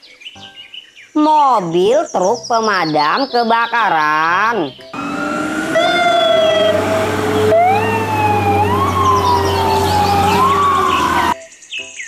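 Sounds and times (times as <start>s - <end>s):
fire engine siren wailing: 5.0s - 11.4s.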